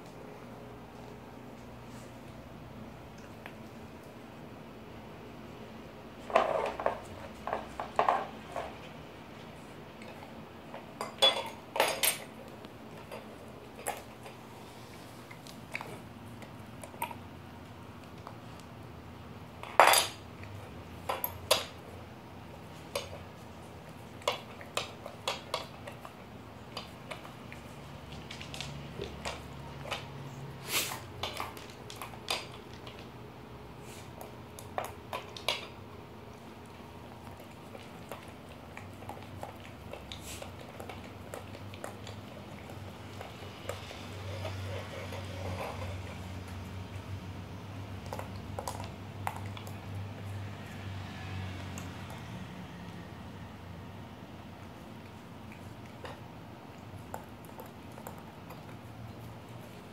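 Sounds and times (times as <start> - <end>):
dog licking: 36.3 - 47.1.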